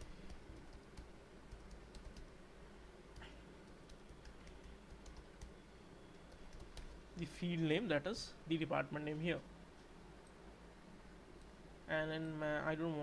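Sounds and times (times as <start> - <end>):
faint keyboard typing: 0.0 - 2.3, 3.1 - 7.3.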